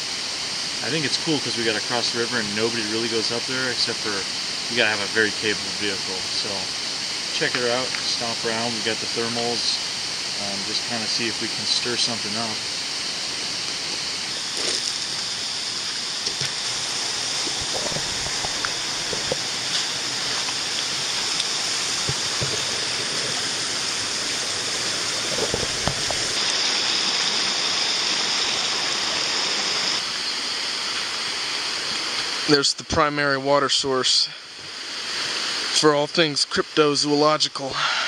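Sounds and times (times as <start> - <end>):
river rushing over stones: 10.9 - 32.6.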